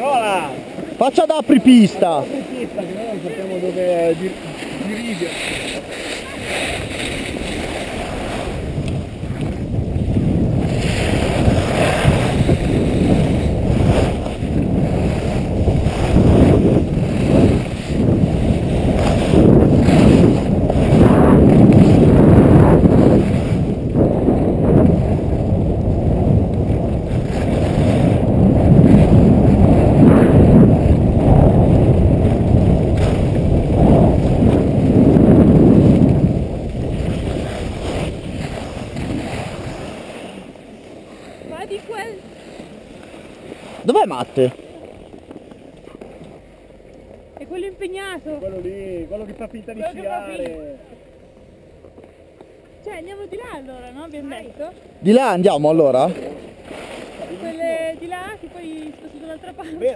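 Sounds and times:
skis scraping over snow: 0:00.0 - 0:47.7
wind buffeting microphone: 0:03.7 - 0:40.3.

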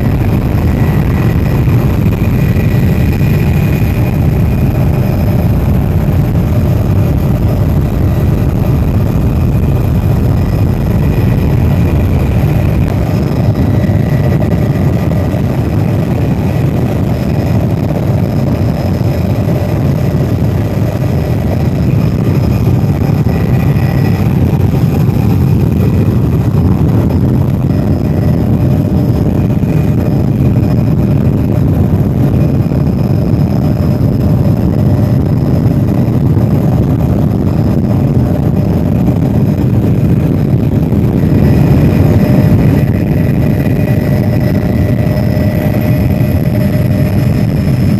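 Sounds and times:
faint high whine: 0:00.0 - 0:47.9
helicopter engine and rotor rumble: 0:00.0 - 0:47.9.

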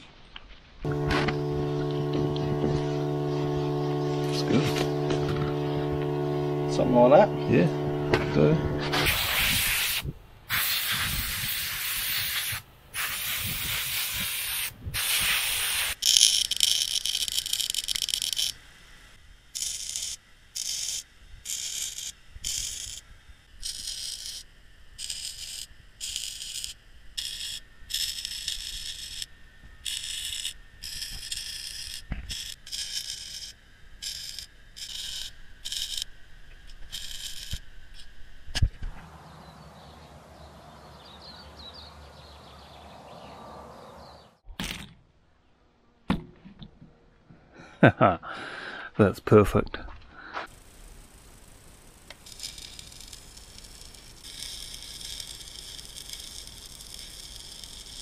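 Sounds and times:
short welding bursts: 0:00.8 - 0:18.6, 0:19.5 - 0:23.0, 0:23.6 - 0:36.1, 0:36.8 - 0:38.1, 0:50.4 - 0:58.0
electric arc welding crackle: 0:00.8 - 0:39.9, 0:50.4 - 0:58.0.

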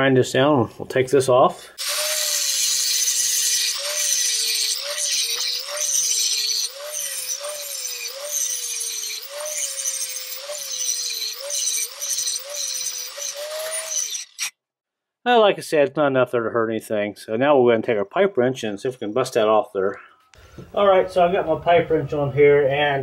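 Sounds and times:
angle grinder grinding steel: 0:01.8 - 0:14.5.

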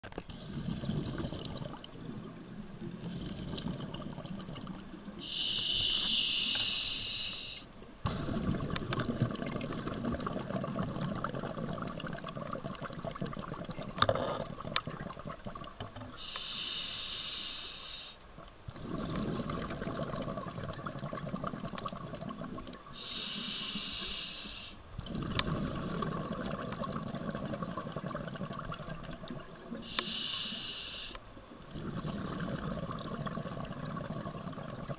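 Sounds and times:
bubbling exhalation: 0:00.3 - 0:02.3, 0:02.9 - 0:05.4, 0:08.1 - 0:16.2, 0:18.7 - 0:23.1, 0:25.0 - 0:30.0, 0:31.7 - 0:34.9
regulator hissing inhalations: 0:05.2 - 0:07.7, 0:16.2 - 0:18.2, 0:23.0 - 0:24.8, 0:29.8 - 0:31.2.

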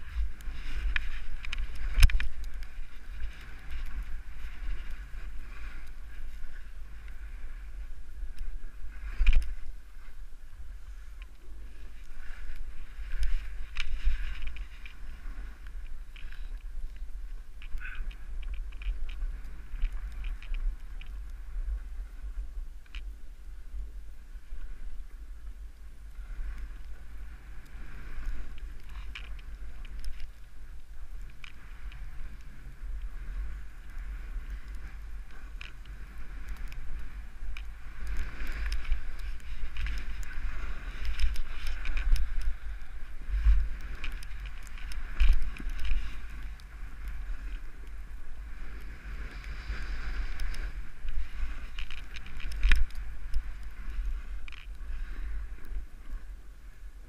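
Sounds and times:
snow sliding hiss: 0:00.0 - 0:57.0
wind buffeting microphone: 0:00.0 - 0:57.0
small clicks and knocks: 0:00.1 - 0:05.0, 0:08.3 - 0:09.7, 0:11.2 - 0:21.4, 0:27.6 - 0:33.1, 0:34.4 - 0:48.0, 0:50.2 - 0:54.8.

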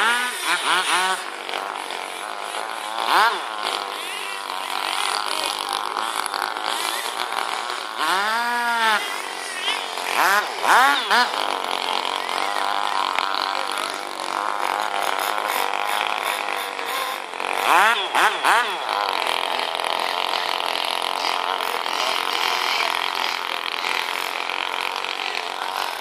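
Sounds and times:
model boat engine buzzing: 0:00.0 - 0:26.0.

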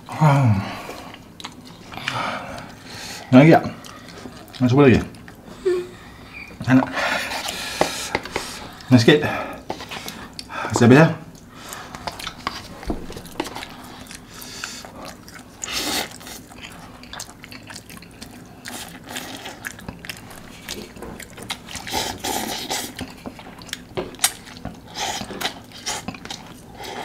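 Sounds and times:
slurping and chewing noodles: 0:00.8 - 0:05.5, 0:11.3 - 0:27.0.

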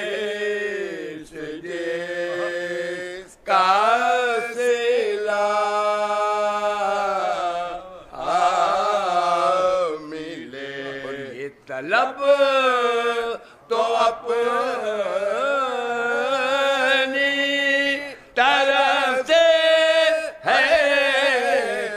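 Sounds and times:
men's voices holding low drone: 0:00.0 - 0:04.2, 0:05.2 - 0:12.7
man chanting wavering melody: 0:02.2 - 0:02.7.

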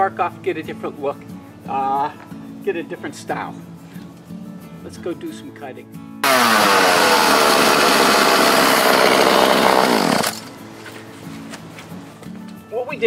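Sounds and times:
chainsaw cutting wood: 0:06.2 - 0:10.6.

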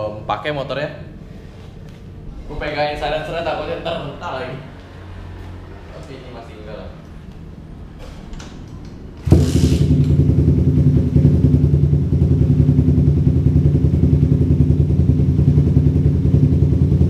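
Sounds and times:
motorcycle engine starting and idling: 0:07.0 - 0:17.0.

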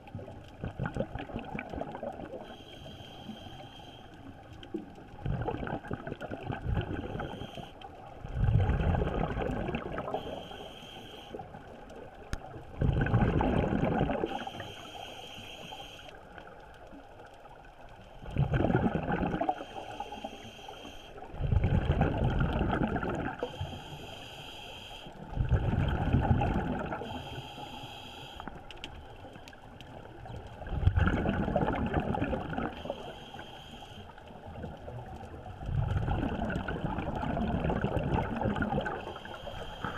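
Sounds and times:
exhaled bubbles gushing: 0:00.0 - 0:02.4, 0:05.1 - 0:07.3, 0:08.2 - 0:10.2, 0:12.5 - 0:14.5, 0:18.2 - 0:19.7, 0:21.3 - 0:23.5, 0:25.4 - 0:27.2, 0:30.2 - 0:32.9, 0:34.6 - 0:39.2
regulator hissing on inhale: 0:02.4 - 0:04.4, 0:07.0 - 0:08.0, 0:10.1 - 0:11.7, 0:14.2 - 0:16.4, 0:19.5 - 0:21.4, 0:23.4 - 0:25.3, 0:27.0 - 0:29.5, 0:32.7 - 0:34.4, 0:38.8 - 0:39.9.

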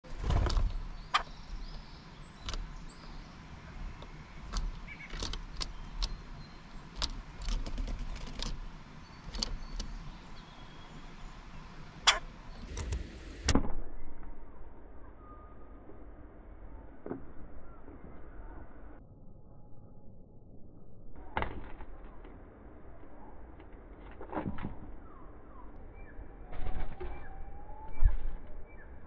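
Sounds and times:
sharp clicks and knocks: 0:04.0 - 0:06.2, 0:09.3 - 0:10.0, 0:12.7 - 0:13.7.

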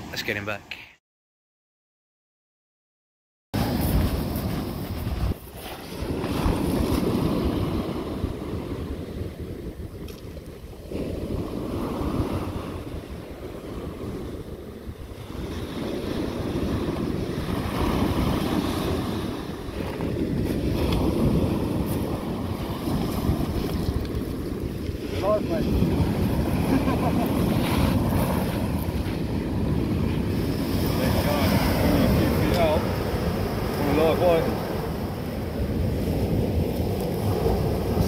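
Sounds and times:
waves washing on shingle: 0:03.6 - 0:08.9, 0:15.3 - 0:38.0
wind buffeting microphone: 0:03.6 - 0:38.0.

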